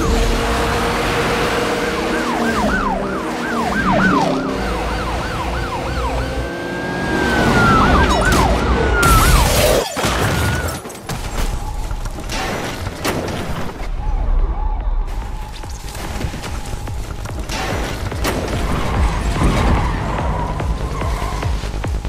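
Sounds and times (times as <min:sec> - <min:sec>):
police siren wailing: 0:00.0 - 0:09.8
music: 0:14.0 - 0:22.0.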